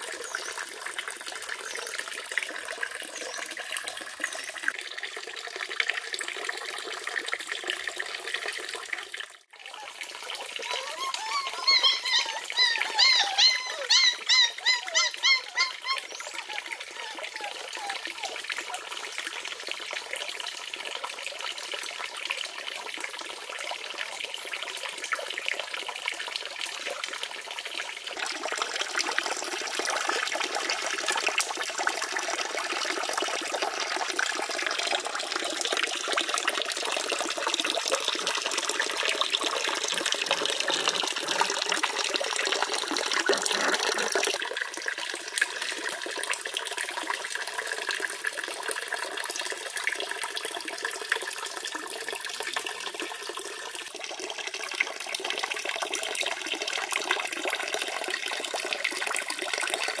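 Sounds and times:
fountain water splashing: 0:00.0 - 0:24.2, 0:33.3 - 0:46.6.

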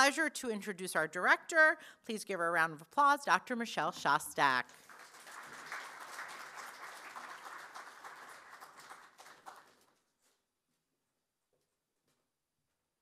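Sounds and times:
audience applauding: 0:04.7 - 0:10.0.

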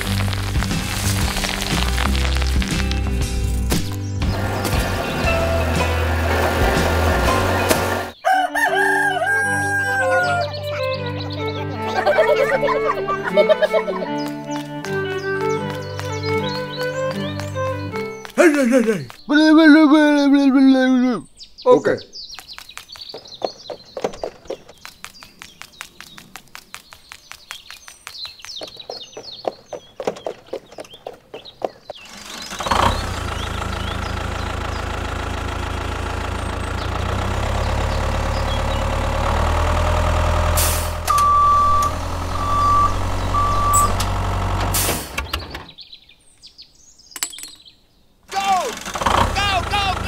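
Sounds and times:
tractor engine running: 0:00.0 - 0:08.2, 0:09.9 - 0:19.5, 0:29.8 - 0:45.8, 0:48.3 - 0:50.0
birds chirping: 0:00.0 - 0:50.0
short beeps: 0:41.1 - 0:44.0.

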